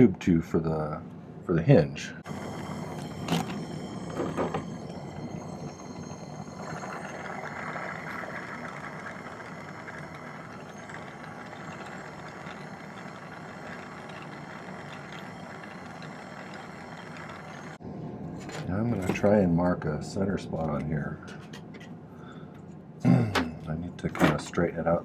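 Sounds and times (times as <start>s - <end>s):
soldering torch flame hissing: 2.2s - 9.8s.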